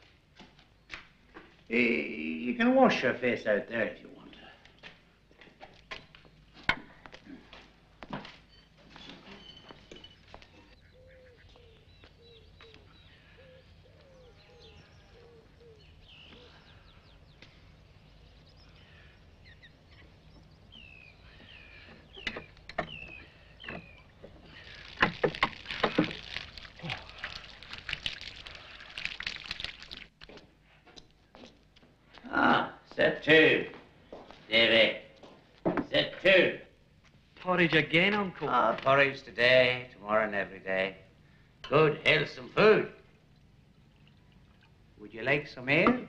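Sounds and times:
birds chirping: 0.4 - 30.0
water splashing from hand pump: 22.4 - 30.2.

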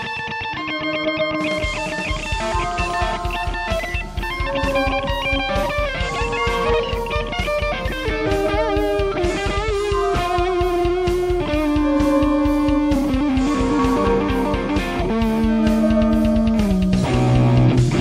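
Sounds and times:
electric guitar music: 0.0 - 18.0.

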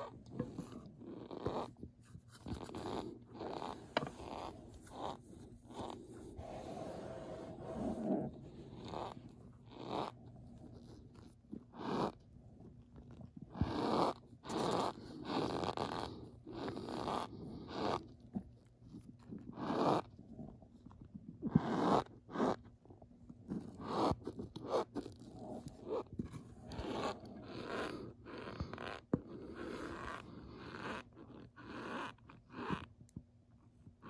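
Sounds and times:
spatula pushing into powder: 0.0 - 10.2.

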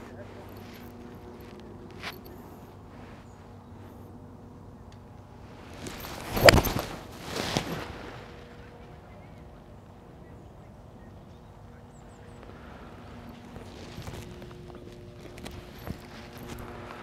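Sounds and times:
golf club swing rush: 5.5 - 8.6.

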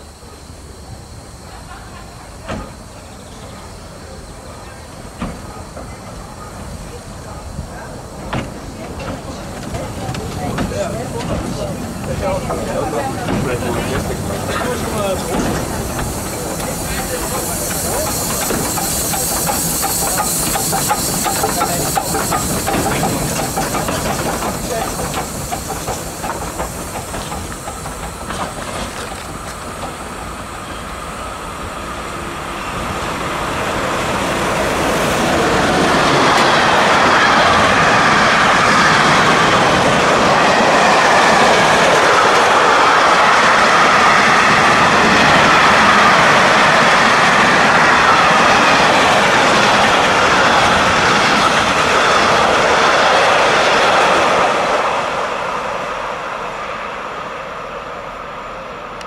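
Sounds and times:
freight train wheels clicking: 1.6 - 55.2.

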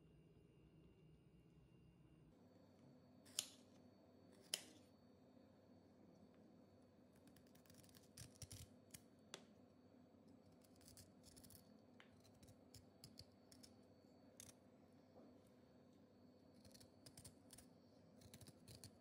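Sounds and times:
knife cutting vegetable: 3.3 - 3.6.

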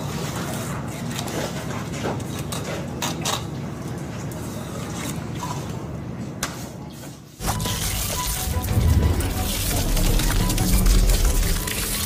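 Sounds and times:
low mechanical rumble: 7.4 - 12.0.

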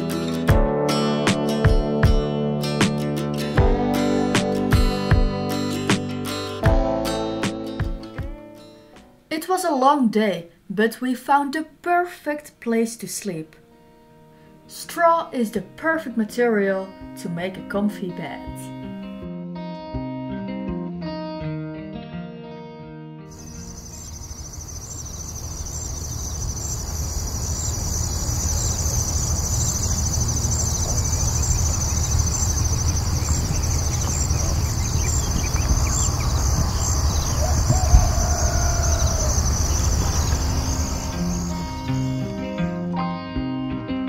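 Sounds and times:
guitar music: 0.0 - 9.3, 15.6 - 25.9, 39.4 - 44.0
crickets chirping: 23.3 - 42.3
low rumbling background: 23.4 - 41.8.

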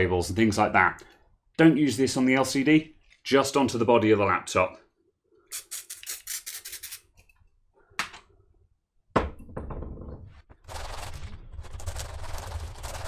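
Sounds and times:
aerosol spray hiss: 5.5 - 7.0
aerosol can rattling: 5.5 - 7.2.

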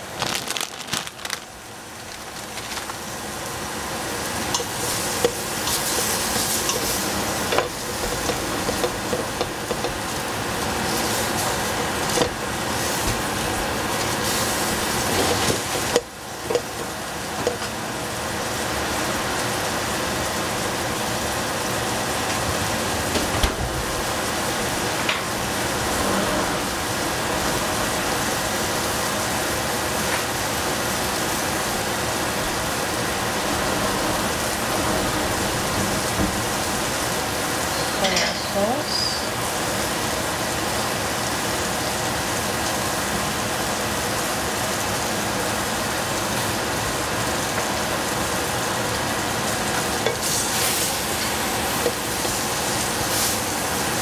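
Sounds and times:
food sizzling in a pot: 1.6 - 22.9, 35.6 - 54.0.

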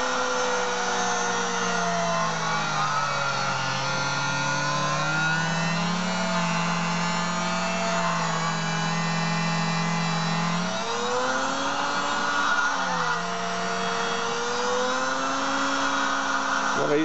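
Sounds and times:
lens grinding machine whining: 0.0 - 17.0.

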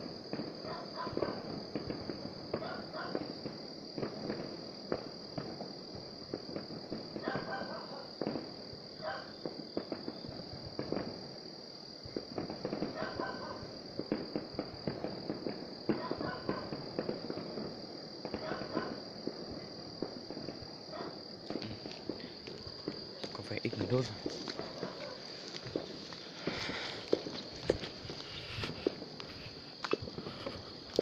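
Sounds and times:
distant fireworks popping and crackling: 0.0 - 31.0.

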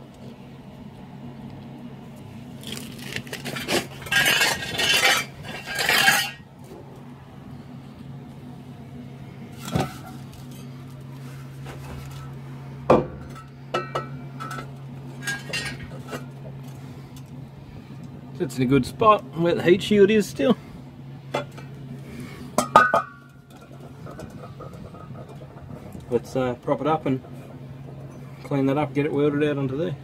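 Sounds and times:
low hum: 0.0 - 30.0
exhaust pipe scraping and rattling: 2.6 - 6.9, 9.2 - 30.0
metal clanks: 3.4 - 6.4, 13.0 - 16.3.

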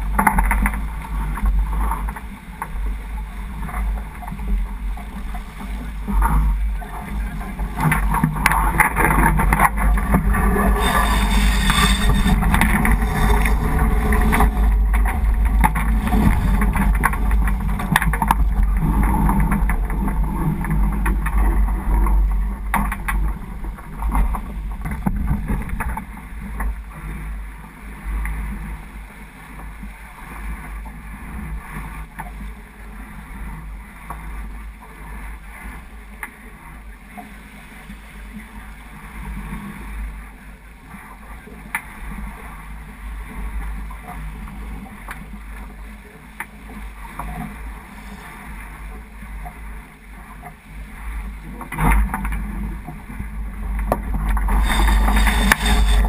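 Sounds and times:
water rushing along hull: 0.0 - 56.0
wind buffeting microphone: 6.6 - 26.3, 52.6 - 56.0.

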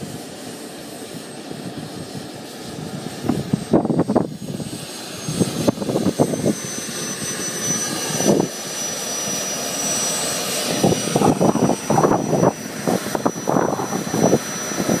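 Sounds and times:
model jet turbine whining: 0.0 - 15.0
low gusts of noise: 1.1 - 6.9, 10.6 - 15.0.

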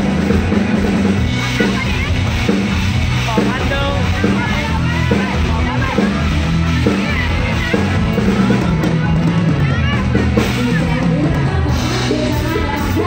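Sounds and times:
bass line: 0.0 - 13.0
drum kit beat: 0.0 - 13.0
woman singing into a microphone: 9.5 - 13.0.

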